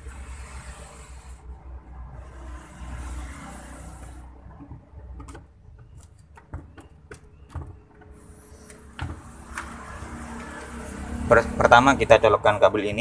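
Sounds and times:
plastic clicks and knocks: 0:04.6 - 0:08.2.

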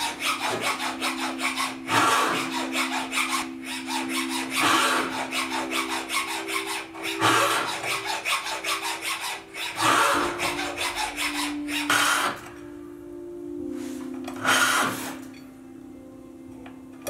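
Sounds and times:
hand file rasping on metal ring: 0:00.0 - 0:12.5, 0:14.3 - 0:15.4.

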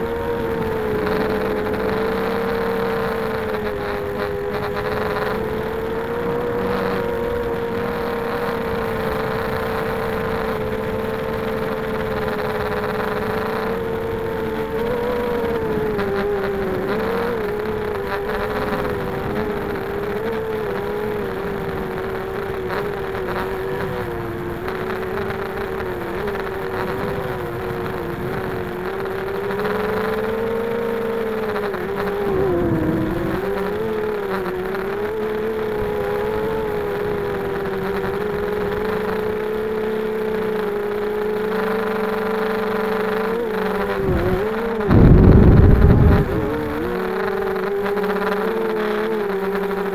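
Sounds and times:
quadcopter motors whining: 0:00.0 - 0:49.9
rushing air: 0:44.9 - 0:46.4.

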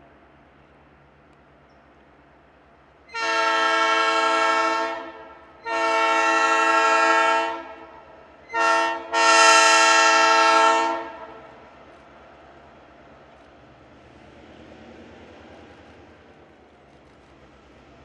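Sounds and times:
locomotive air horn blasts: 0:03.1 - 0:11.4.

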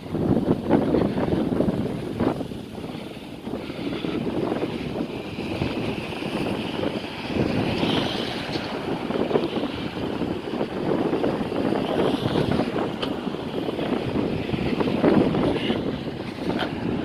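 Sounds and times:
road traffic: 0:00.0 - 0:17.0
wind gusting on microphone: 0:00.0 - 0:17.0
vehicle passing with hiss: 0:00.2 - 0:17.0.

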